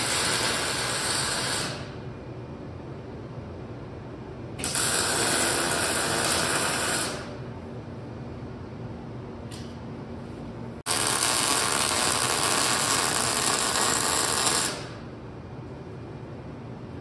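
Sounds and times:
welding crackling sizzle: 0.0s - 1.9s, 4.6s - 7.4s, 10.9s - 15.0s.

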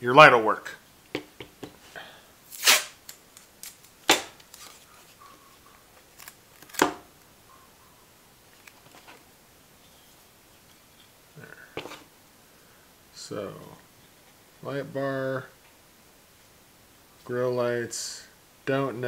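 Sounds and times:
tape ripped off roll: 2.5s - 4.4s.

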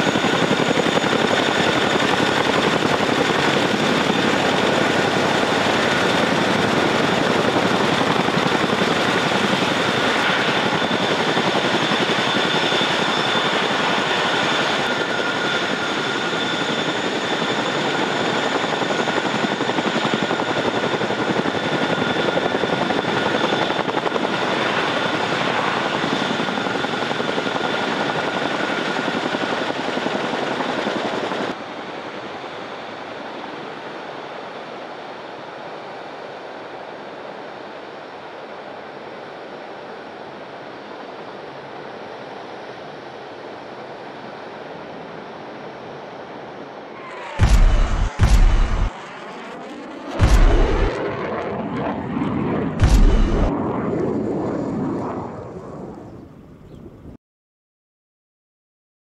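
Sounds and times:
high turbine whine: 0.0s - 29.4s, 46.8s - 52.0s, 52.6s - 54.0s
helicopter rotor and engine rush: 0.0s - 57.1s.

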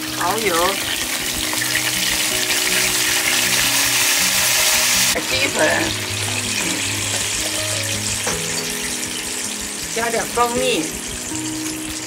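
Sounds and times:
sauce bubbling in pan: 0.0s - 12.0s
sauce sizzling in hot oil: 0.0s - 12.0s.

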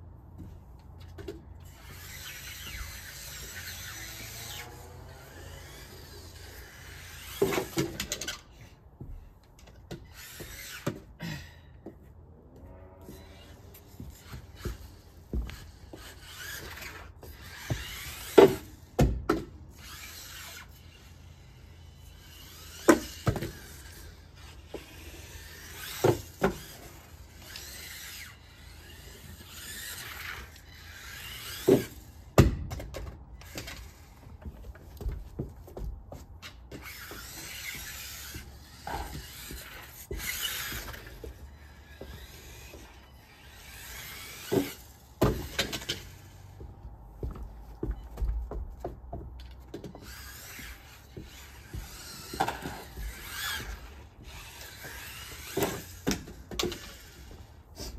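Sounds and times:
toy car motor whirring: 1.6s - 8.8s, 9.9s - 11.1s, 13.0s - 19.1s, 19.7s - 32.4s, 33.4s - 35.2s, 36.4s - 48.0s, 49.8s - 57.9s
tyres scrubbing and squealing: 1.7s - 7.9s, 36.6s - 45.2s, 49.8s - 56.1s
toy car crashing into things: 5.4s - 8.5s.

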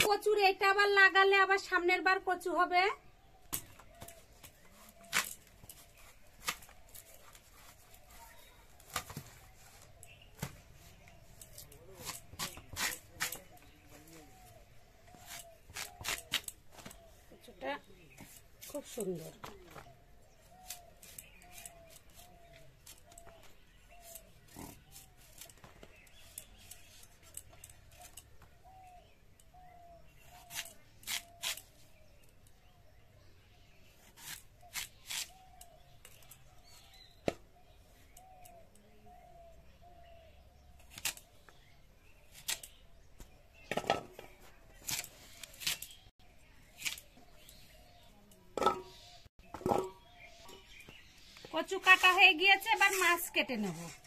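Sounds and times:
blade cutting vegetable: 11.4s - 13.5s, 30.3s - 31.7s, 34.0s - 35.7s, 44.8s - 46.0s.

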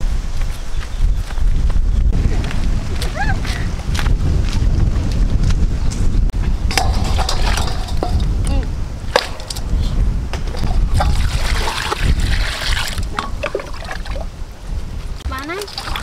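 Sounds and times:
wind rumbling on microphone: 0.0s - 16.0s
clinks against metal bowl: 6.7s - 8.3s
water sloshing in steel bowl: 6.7s - 8.3s, 9.1s - 9.7s, 10.4s - 14.3s, 15.4s - 16.0s.

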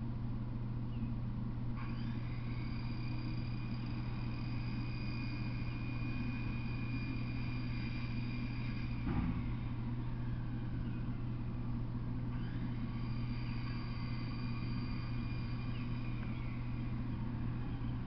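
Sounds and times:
constant background noise: 0.0s - 18.0s
steady low hum: 0.0s - 18.0s.

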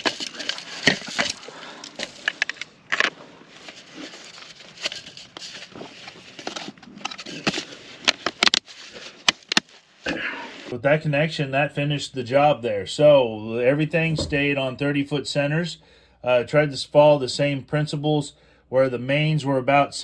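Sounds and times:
plastic crinkling and scraping: 0.0s - 10.7s.

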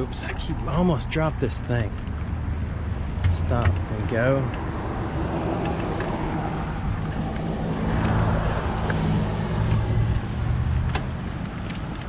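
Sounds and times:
road traffic noise: 0.0s - 12.0s
car passing by: 3.5s - 11.1s.

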